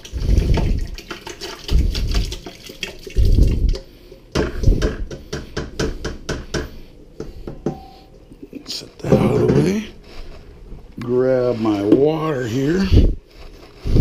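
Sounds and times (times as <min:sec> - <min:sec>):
dripping: 0:00.0 - 0:05.3.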